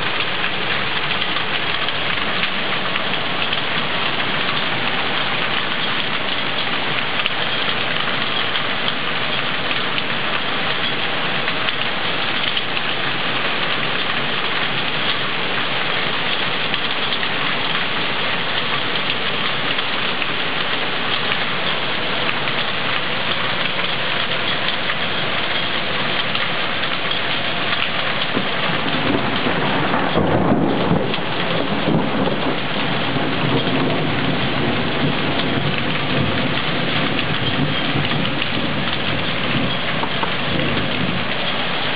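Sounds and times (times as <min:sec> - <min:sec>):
heavy rain pouring: 0:00.0 - 0:41.9
thunder rumbling: 0:18.4 - 0:41.9.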